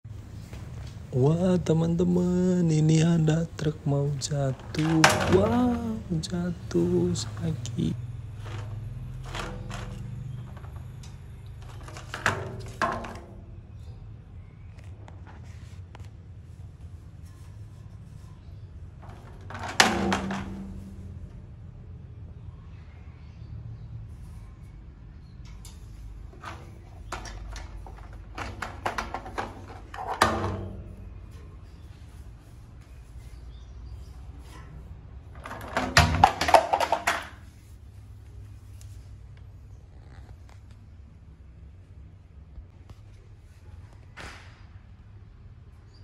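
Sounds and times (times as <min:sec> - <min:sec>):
plastic toy clunking on metal stairs: 0:03.6 - 0:07.2, 0:08.4 - 0:13.5, 0:19.0 - 0:21.2, 0:25.6 - 0:31.2, 0:35.4 - 0:37.4
toy truck clicks and knocks on metal stair: 0:04.1 - 0:06.4, 0:19.0 - 0:21.1, 0:35.4 - 0:37.4.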